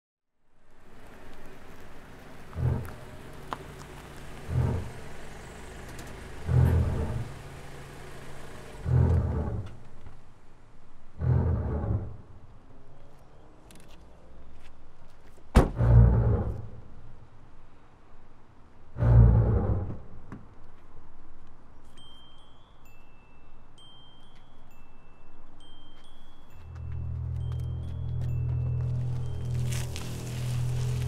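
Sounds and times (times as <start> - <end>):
low hum: 6.3 - 12.8, 18.8 - 20.3, 26.6 - 31.0.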